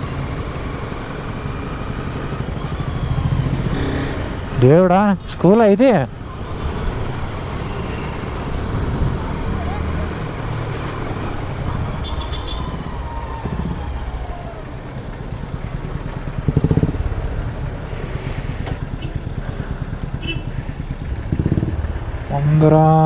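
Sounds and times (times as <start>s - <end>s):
motorcycle engine running: 11.4s - 23.0s
vehicle horn blast: 12.0s - 12.7s, 20.2s - 20.5s.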